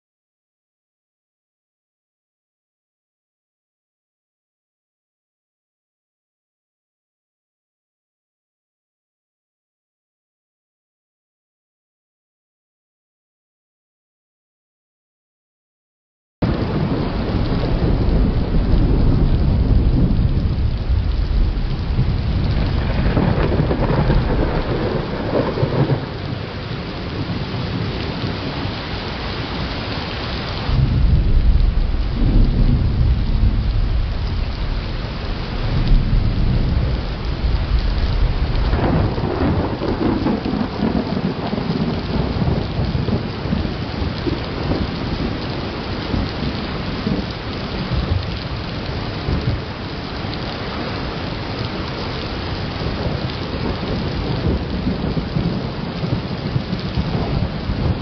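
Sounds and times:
loud thunder peal: 16.4s - 28.4s, 30.7s - 45.5s
steady rain: 16.4s - 58.0s
thunder rumbling: 16.4s - 58.0s.

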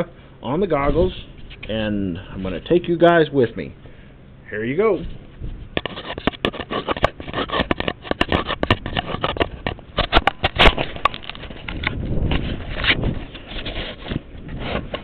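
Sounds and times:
camera handling knocks and scraping: 5.8s - 13.0s.

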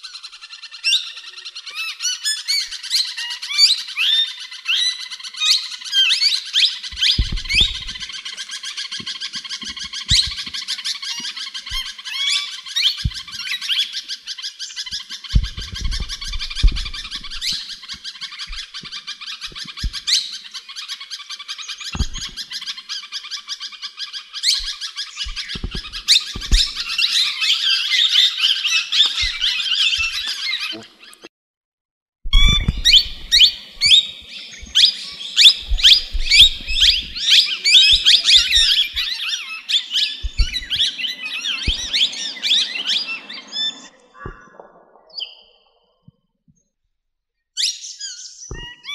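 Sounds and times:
parakeets chattering and squawking: 1.1s - 23.0s, 24.4s - 31.2s, 32.3s - 44.4s
low knocks: 7.0s - 8.1s, 15.3s - 17.9s, 34.6s - 39.1s.

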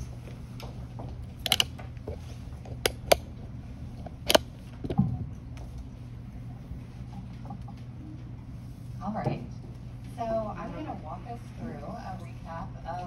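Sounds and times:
steady low hum: 0.0s - 13.0s
handling clicks and knocks: 1.4s - 3.3s.

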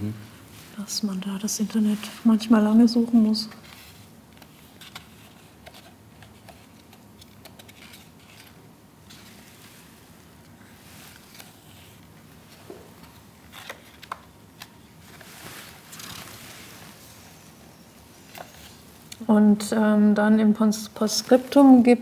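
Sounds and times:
book pages rustling: 3.4s - 17.4s.

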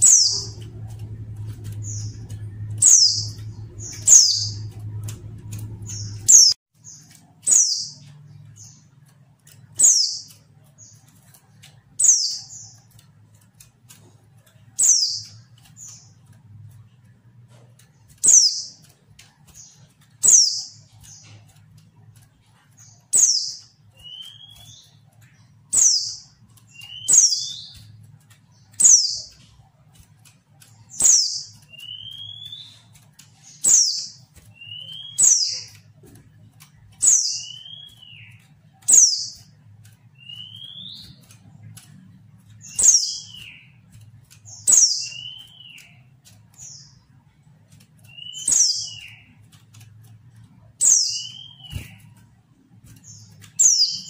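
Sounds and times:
bird calling: 0.0s - 6.6s.

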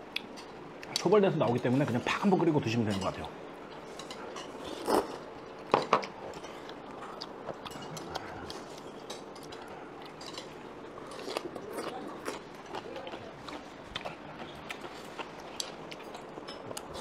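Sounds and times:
steady low hiss: 0.0s - 17.0s
chewing: 6.0s - 17.0s
utensils clinking against bowls: 7.5s - 11.9s.

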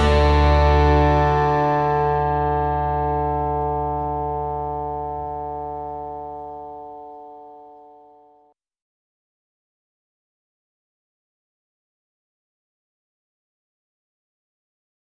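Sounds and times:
background music held chord: 0.0s - 8.5s.

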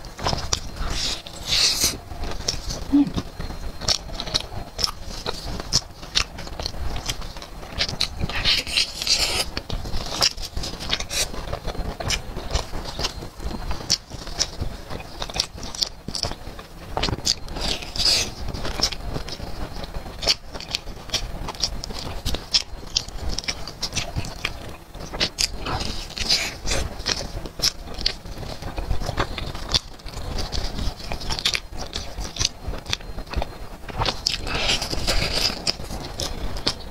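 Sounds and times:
crunching and chewing fried chicken: 0.0s - 36.9s.

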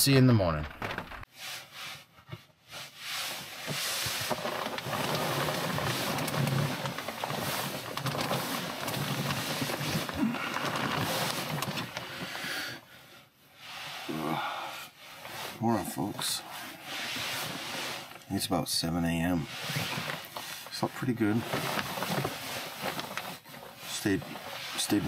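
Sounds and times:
sleeping bag rustling: 2.8s - 12.4s, 15.0s - 18.2s, 19.1s - 25.0s.

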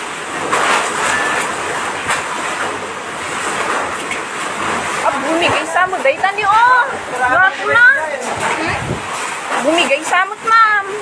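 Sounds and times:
strong wind rushing: 7.6s - 9.2s.

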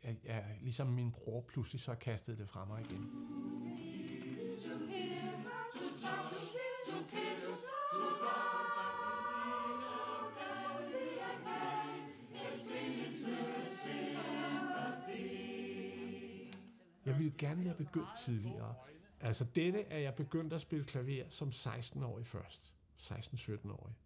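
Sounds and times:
mixed choir singing: 2.8s - 16.8s.

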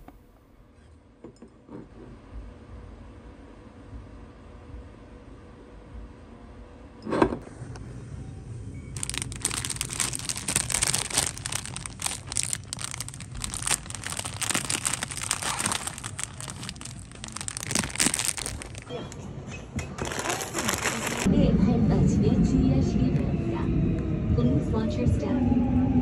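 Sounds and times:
plastic packets crinkling: 9.0s - 19.1s, 20.0s - 21.3s.

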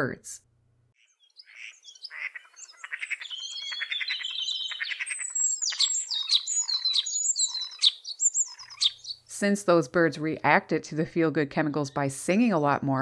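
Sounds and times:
starling singing: 1.0s - 9.3s.

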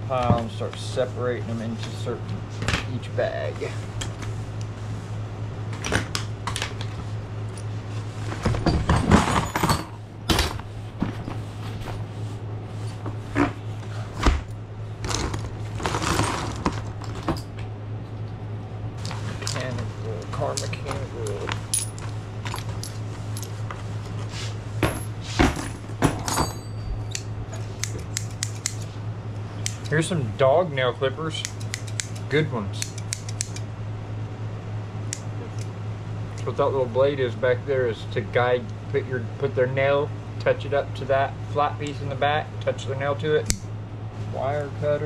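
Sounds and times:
steady low hum: 0.0s - 45.0s
tools clattering: 8.3s - 11.4s, 20.5s - 23.8s, 24.8s - 28.8s.

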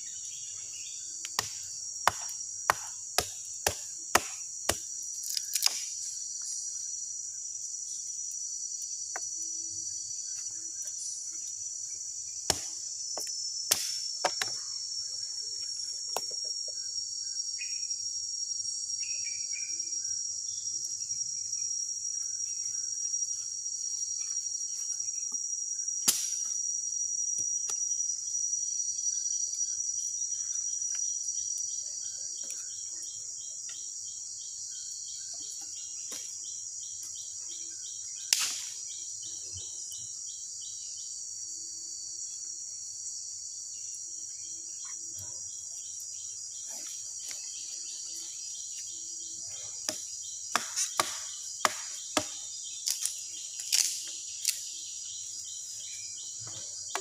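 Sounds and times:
insects droning: 0.0s - 57.0s
sharp knocks: 1.4s - 4.8s, 49.9s - 52.4s.

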